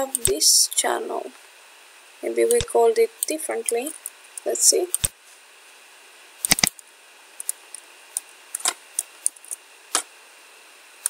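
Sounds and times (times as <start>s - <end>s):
faint steady hiss: 0.0s - 11.0s
mouse and keyboard clicks: 6.5s - 6.7s.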